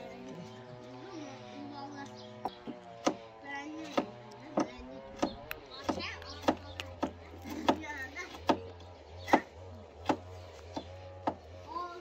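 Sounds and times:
knife chopping on wooden board: 3.8 - 11.5.

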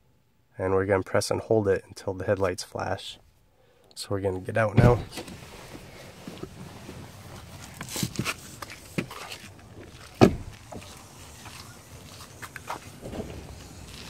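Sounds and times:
car door opening: 4.7 - 6.6, 7.8 - 11.0, 12.6 - 14.0
car door shutting thump: 4.8 - 5.4, 10.2 - 10.8
footsteps on concrete: 7.6 - 14.0.

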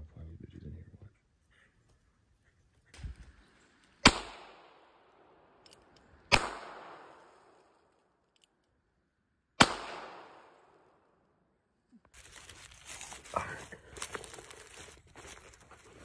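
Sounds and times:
revolver shots with echo: 4.0 - 4.8, 6.3 - 7.2, 9.6 - 10.7.

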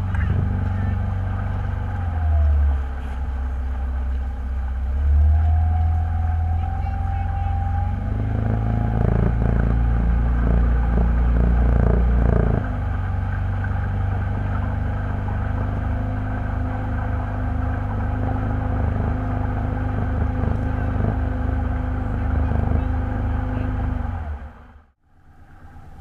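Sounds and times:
low engine rumble: 0.0 - 26.0.

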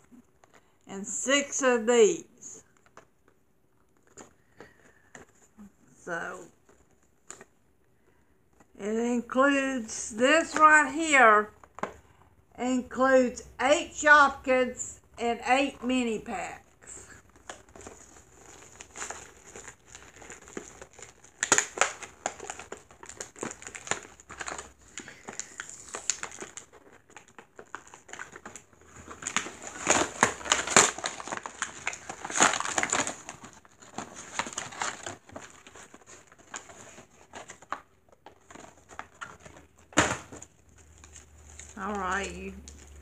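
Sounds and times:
plastic packaging crinkling: 16.8 - 43.0.

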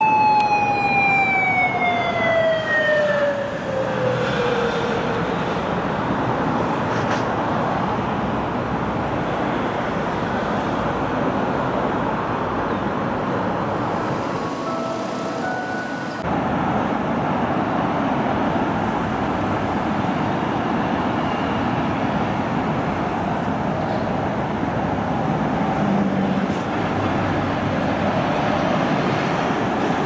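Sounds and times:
police siren winding down: 0.0 - 5.0
city traffic noise: 0.0 - 30.0.

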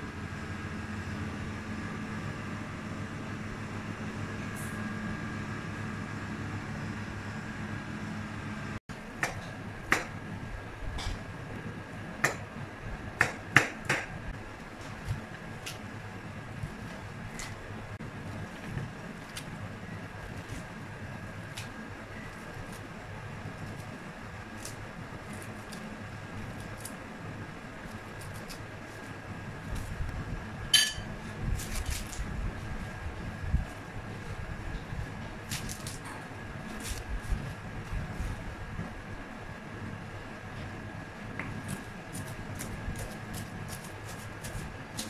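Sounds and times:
background hum: 0.0 - 45.0
knife scraping corn cob: 27.8 - 29.9, 35.4 - 37.5, 41.6 - 45.0
sharp clink: 30.8 - 31.1.

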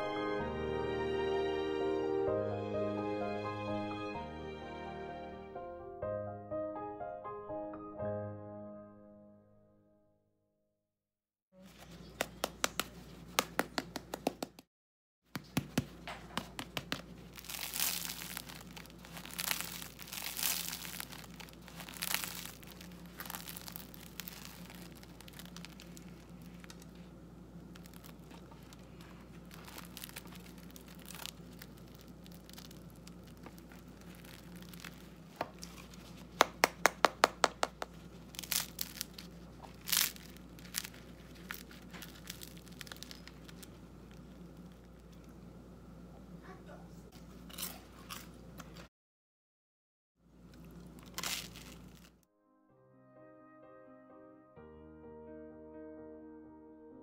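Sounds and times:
bread crust crackling: 15.4 - 45.4, 50.5 - 52.2
bread tearing: 15.9 - 27.1, 27.7 - 45.2, 50.6 - 52.2.

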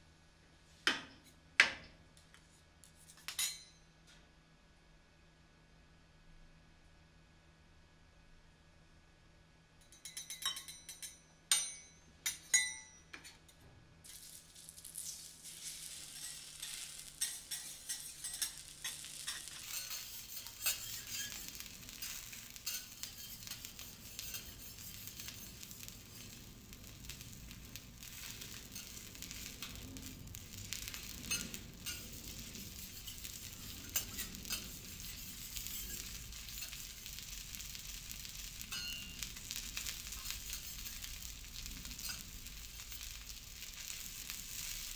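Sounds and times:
ringing metal clinks: 9.8 - 13.4
food sizzling on griddle: 14.1 - 44.9.

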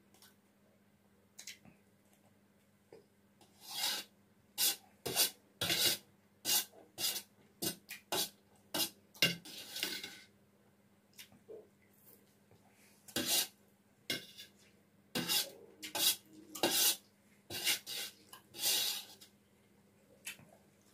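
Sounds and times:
metal spoon scraping steel plate: 3.5 - 7.2, 8.1 - 10.3, 13.2 - 13.5, 14.1 - 14.6, 15.2 - 19.2.

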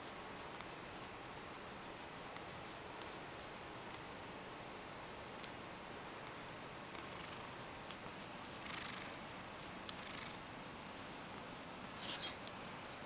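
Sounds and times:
hand brushing over fur: 0.0 - 5.5, 7.4 - 9.9
cat purring faintly: 6.3 - 10.5.

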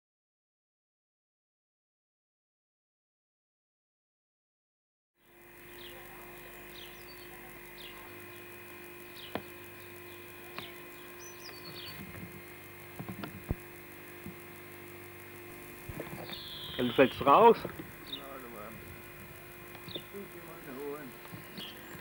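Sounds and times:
electrical hum: 5.2 - 22.0
birds chirping: 5.6 - 22.0.

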